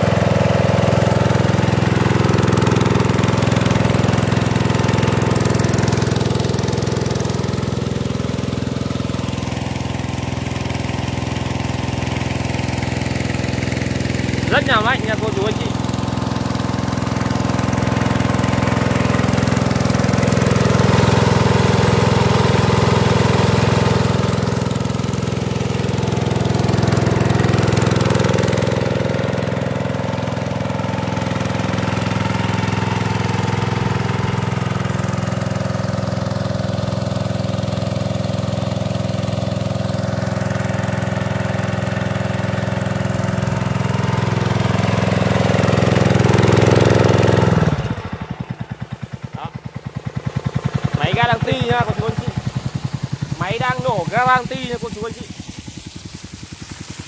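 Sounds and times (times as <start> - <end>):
petrol engine running: 0.0 - 57.0
water jet hissing: 0.0 - 57.0.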